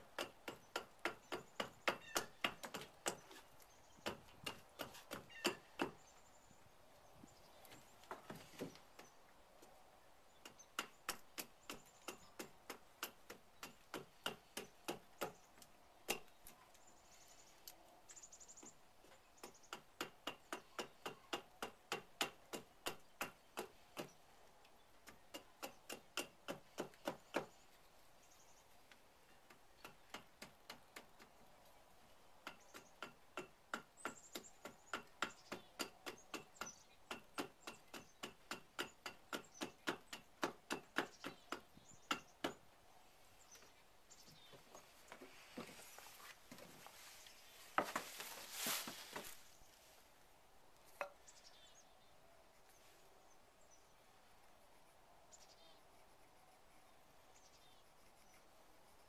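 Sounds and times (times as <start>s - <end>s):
hatchet chopping wood: 0.0s - 6.1s, 10.3s - 16.5s, 19.3s - 24.2s, 25.0s - 27.7s, 29.5s - 31.4s, 32.4s - 42.6s.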